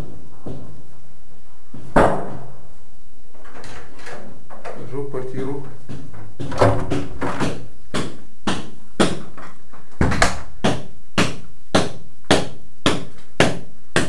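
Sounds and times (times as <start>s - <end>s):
knocking on wall: 1.9s - 2.4s, 5.9s - 9.4s, 10.0s - 14.0s.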